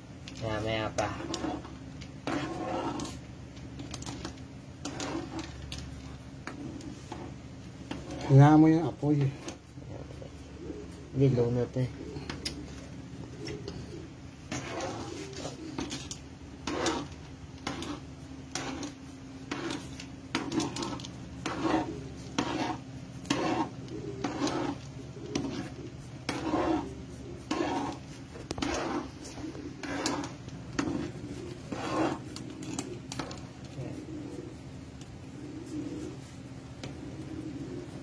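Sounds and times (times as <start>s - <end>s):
steady low hum: 0.0s - 38.0s
metal spoon scraping a pan: 0.6s - 9.6s, 14.5s - 33.4s.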